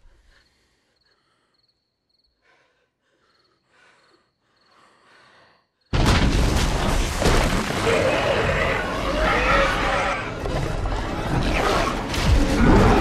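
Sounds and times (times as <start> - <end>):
soft breathing: 0.0 - 5.9
insects chirping trills: 0.1 - 5.9.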